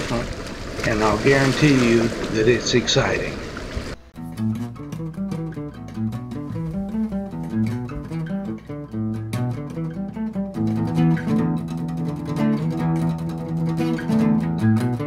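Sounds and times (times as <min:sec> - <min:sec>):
plucked guitar music: 0:04.0 - 0:15.0.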